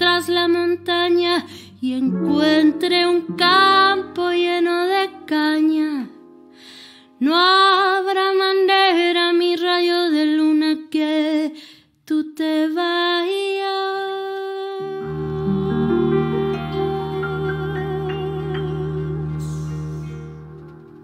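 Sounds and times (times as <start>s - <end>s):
bowed double bass: 0.0s - 4.8s, 14.8s - 21.0s
woman singing with vibrato: 0.0s - 6.2s, 7.2s - 20.4s
piano: 0.0s - 11.5s, 12.6s - 21.0s.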